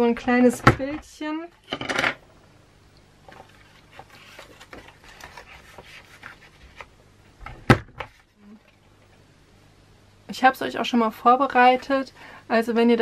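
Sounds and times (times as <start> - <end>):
cardstock rustling and sliding: 3.2 - 6.9.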